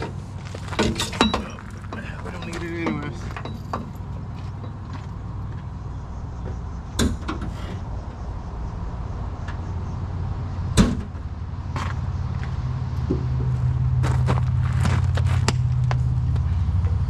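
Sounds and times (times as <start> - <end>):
low motor hum: 7.8 - 17.0.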